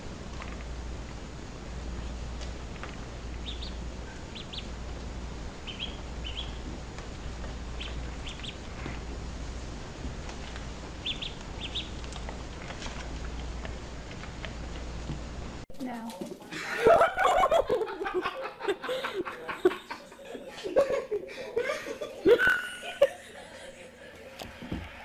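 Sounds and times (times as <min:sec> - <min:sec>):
low steady hum: 0:00.0 - 0:25.0
duckling peeping: 0:02.0 - 0:09.1, 0:10.2 - 0:14.8.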